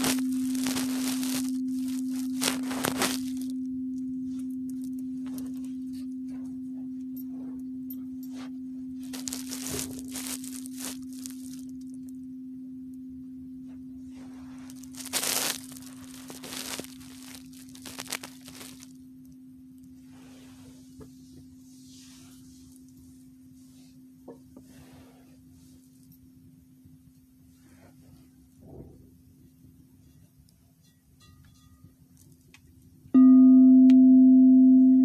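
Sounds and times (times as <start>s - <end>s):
wood fire crackling: 0.0s - 3.6s, 9.0s - 12.0s, 14.5s - 19.0s
singing bowl ringing: 0.0s - 20.5s, 33.1s - 35.0s.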